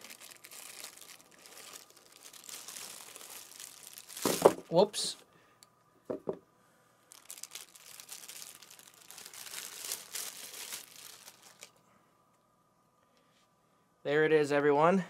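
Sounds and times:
packaging crinkling: 0.0s - 5.1s, 7.1s - 11.8s.

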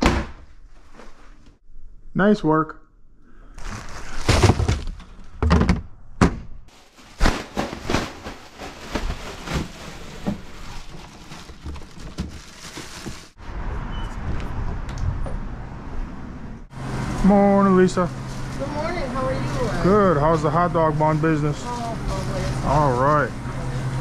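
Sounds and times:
thumps and knocks: 4.3s - 6.6s
vehicle engine rumbling: 8.4s - 24.0s.

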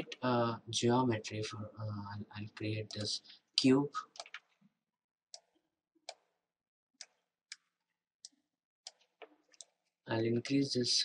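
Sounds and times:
computer mouse clicks: 2.8s - 3.2s, 4.1s - 4.6s, 5.4s - 6.3s, 7.0s - 9.8s.

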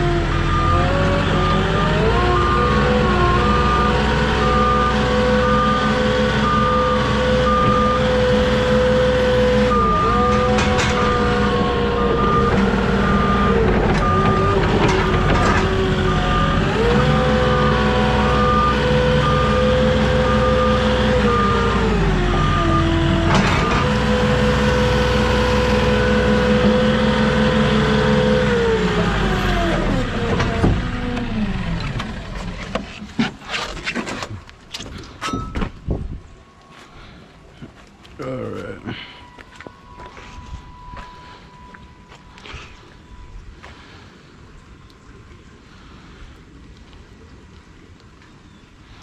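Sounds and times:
forklift engine running: 0.0s - 33.1s
reverse alarm beeping: 0.4s - 24.2s, 39.0s - 43.5s.

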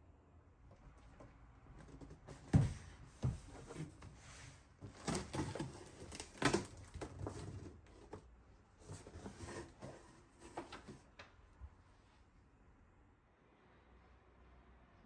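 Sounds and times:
cardboard flaps scraping and rustling: 1.8s - 11.1s
plastic packing rustling: 4.8s - 8.2s.

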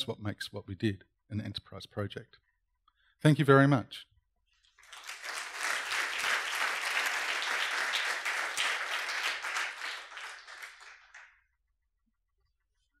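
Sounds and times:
audience applauding: 4.8s - 11.4s.

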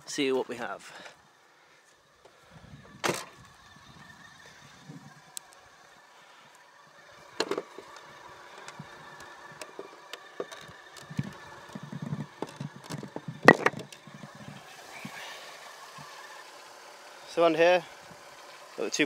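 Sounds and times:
faint car engine idling: 0.0s - 19.0s
car bonnet clicks and clunks: 3.0s - 3.4s, 7.4s - 14.1s.

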